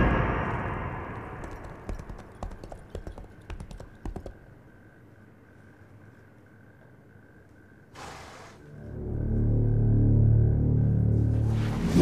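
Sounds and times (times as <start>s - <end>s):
horse hooves clip-clopping: 1.4s - 4.5s.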